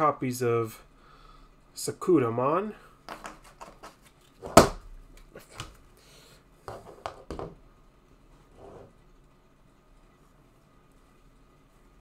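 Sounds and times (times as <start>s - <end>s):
loud knock on a table: 6.7s - 7.6s.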